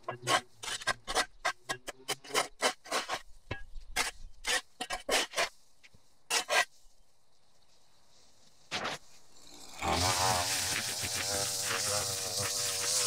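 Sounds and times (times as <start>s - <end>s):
shovel scraping dirt: 0.0s - 3.3s, 3.9s - 5.6s, 6.3s - 6.8s, 8.6s - 9.2s, 9.8s - 13.0s.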